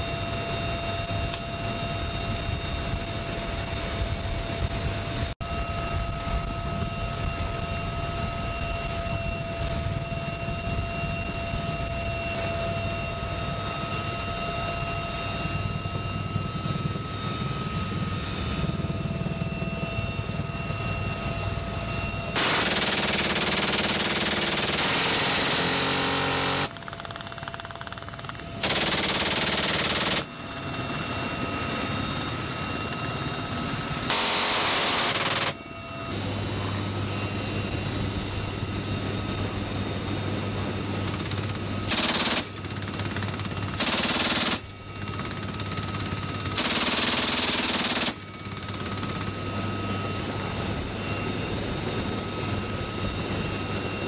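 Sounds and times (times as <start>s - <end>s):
helicopter turbine whine and rotor: 0.0s - 54.0s
machine gun firing bursts: 22.4s - 30.3s, 34.1s - 35.6s, 41.9s - 44.7s, 46.5s - 48.3s.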